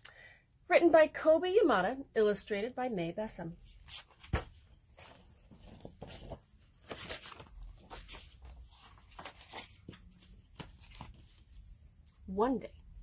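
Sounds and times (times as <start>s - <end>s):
book pages rustling: 3.7s - 12.2s.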